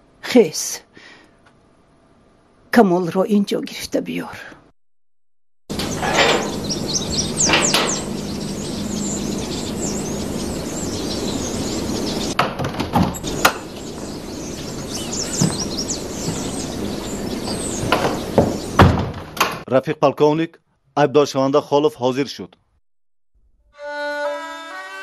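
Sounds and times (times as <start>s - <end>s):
steady low hum: 5.7s - 12.4s, 13.1s - 19.3s
birds chirping: 5.7s - 19.6s
door knocks and clicks: 12.4s - 13.6s, 17.8s - 19.6s.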